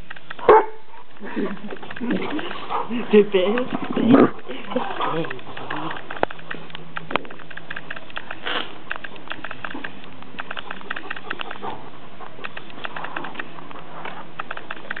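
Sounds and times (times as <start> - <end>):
claws clicking on stone: 0.0 - 0.5, 1.2 - 15.0
puppies panting: 0.9 - 6.7, 9.2 - 14.4.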